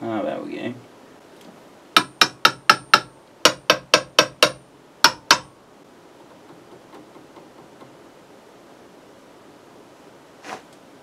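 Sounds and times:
sharp knocks on electronics: 0:02.0 - 0:05.5.

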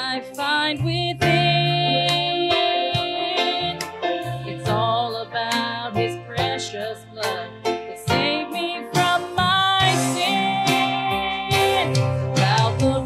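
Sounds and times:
instrumental accompaniment: 0:00.0 - 0:13.0
woman singing into microphone: 0:00.0 - 0:13.0.

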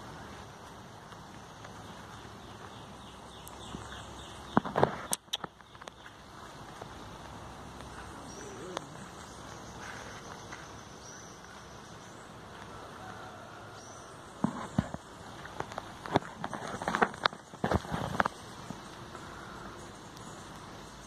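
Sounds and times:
scuffs on gravel: 0:00.0 - 0:13.7
background hiss: 0:00.0 - 0:21.0.

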